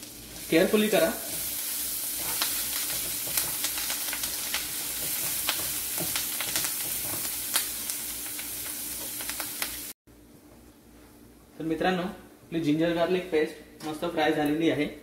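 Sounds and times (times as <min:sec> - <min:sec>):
spatula stirring in pan: 0:00.0 - 0:09.4
paste sizzling in frying pan: 0:00.0 - 0:10.0.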